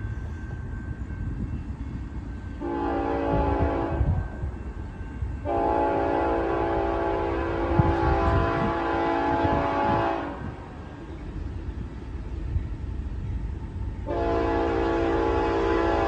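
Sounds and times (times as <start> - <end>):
low train rumble: 0.0 - 16.0
locomotive air horn blasts: 2.6 - 4.3, 5.4 - 10.6, 14.1 - 16.0.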